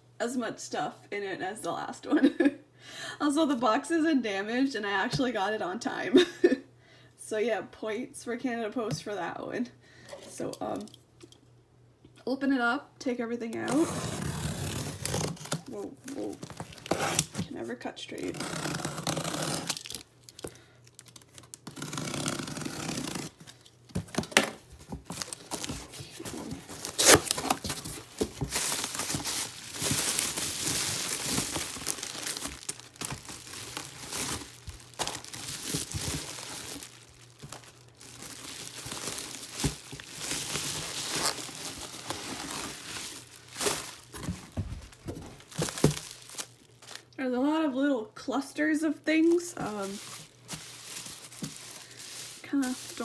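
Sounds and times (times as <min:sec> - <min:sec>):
bubble wrap crinkling and tearing: 0:13.7 - 0:17.5, 0:18.2 - 0:47.2, 0:49.3 - 0:53.0.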